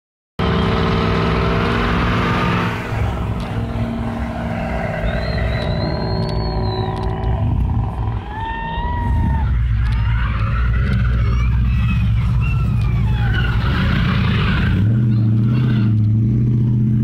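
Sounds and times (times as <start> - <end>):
truck engine at high revs: 0.4 - 8.6, 9.6 - 17.0
tyres squealing: 3.0 - 16.0.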